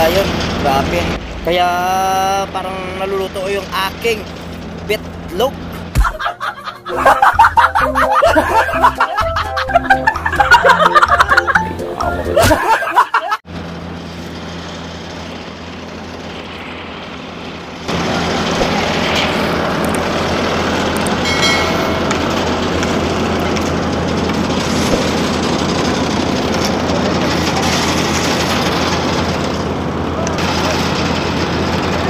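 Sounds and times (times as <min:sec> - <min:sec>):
diesel loader engine running: 0:00.0 - 0:12.7, 0:13.5 - 0:32.0.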